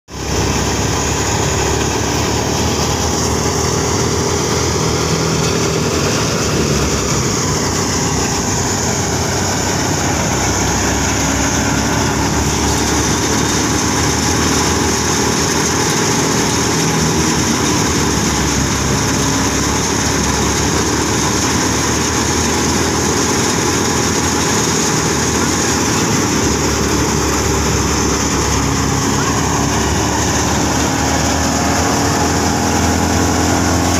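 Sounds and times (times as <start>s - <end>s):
tractor engine running: 0.1s - 33.9s
wheat thresher running: 0.1s - 33.9s.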